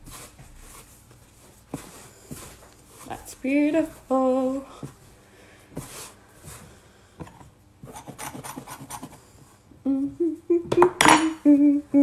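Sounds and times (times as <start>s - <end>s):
hands kneading dough: 0.0s - 9.5s
woman humming: 9.8s - 12.0s.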